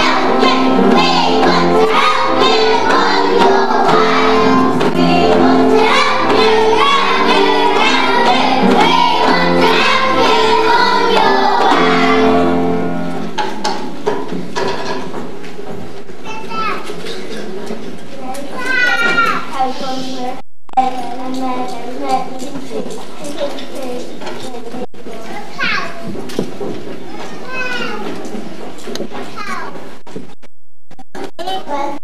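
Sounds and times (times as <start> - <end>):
scattered knocks: 0.0 - 12.4, 13.2 - 16.2
children singing together: 0.0 - 13.0
instrumental accompaniment of held notes: 0.0 - 13.4.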